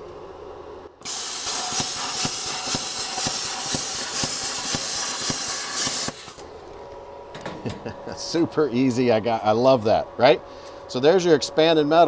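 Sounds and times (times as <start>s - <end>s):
plasma arc ticking: 1.0s - 6.4s
plasma torch hissing: 1.0s - 6.4s.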